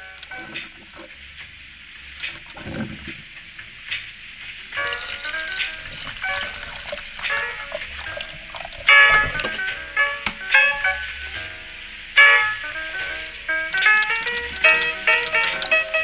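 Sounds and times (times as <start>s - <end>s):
background music: 4.8s - 16.0s.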